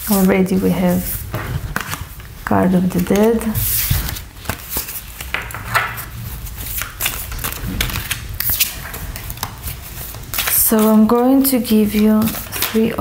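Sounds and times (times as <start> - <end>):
cards clicking and tapping: 2.9 - 6.0, 11.8 - 13.0.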